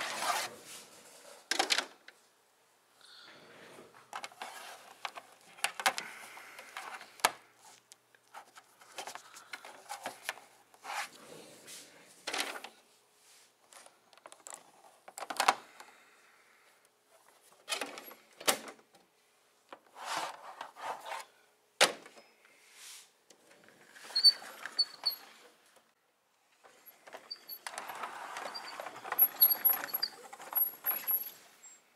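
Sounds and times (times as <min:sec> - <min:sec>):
plastic toys clicking and scraping: 0:26.7 - 0:31.5.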